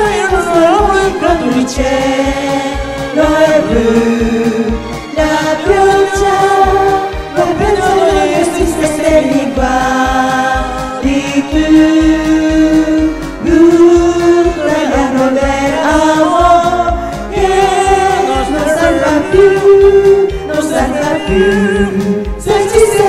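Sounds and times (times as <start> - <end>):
people singing into microphones: 0.0 - 23.0
pop backing track: 0.0 - 23.0.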